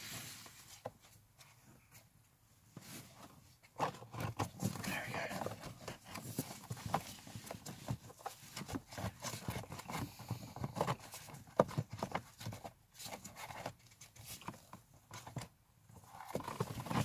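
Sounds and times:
plastic filter knocking and scraping: 3.7s - 17.0s.

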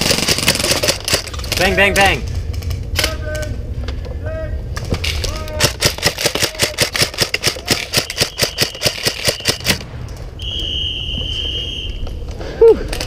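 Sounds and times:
airsoft rifle shots: 0.0s - 1.9s, 5.1s - 10.8s.

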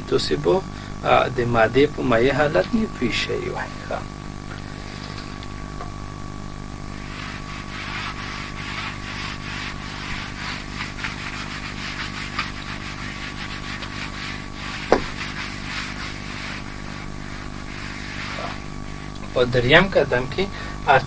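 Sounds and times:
eraser scrubbing whiteboard: 1.4s - 4.0s, 6.8s - 21.0s.

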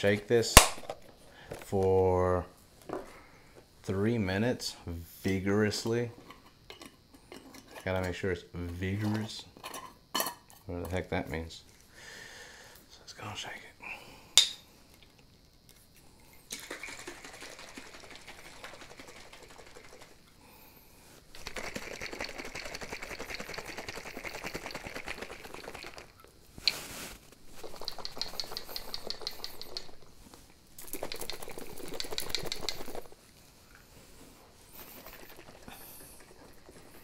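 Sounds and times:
cream sloshing in shaken jar: 16.5s - 20.2s, 21.4s - 26.2s, 34.8s - 37.0s.

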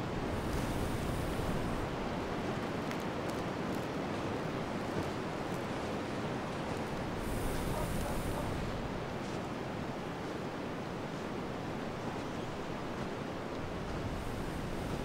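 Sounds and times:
wind blowing: 0.0s - 2.8s, 3.4s - 15.0s.

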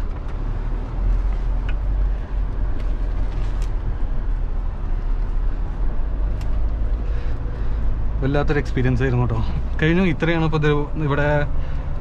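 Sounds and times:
engine rumble inside cabin: 0.0s - 12.0s.

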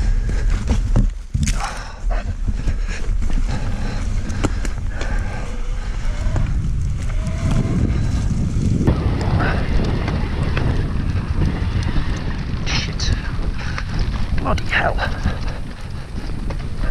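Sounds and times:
tyres rumbling on trail: 0.0s - 16.9s
wind on microphone: 0.0s - 16.9s
bike rattling clicks and knocks: 6.4s - 16.9s.

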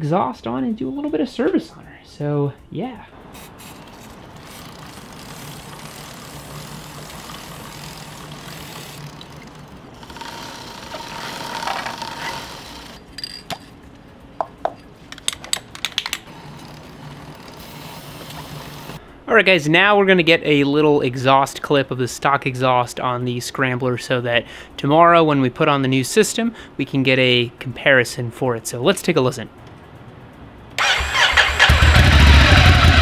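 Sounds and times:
sharp clicks and rattles: 3.2s - 19.0s
aerosol spray hissing: 3.3s - 9.0s, 17.6s - 19.0s
brush scrubbing chain: 3.3s - 13.0s.

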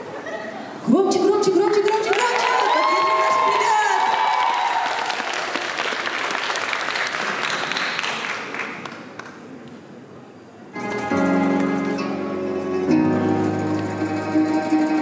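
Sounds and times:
audience applauding: 1.9s - 9.6s.

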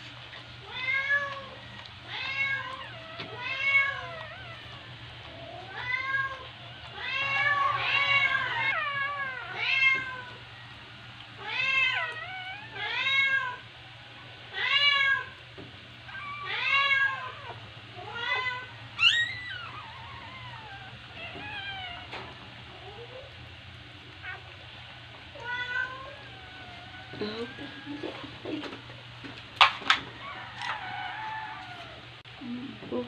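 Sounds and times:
newborn puppies squealing: 5.6s - 9.7s, 16.1s - 22.4s, 25.9s - 28.4s.

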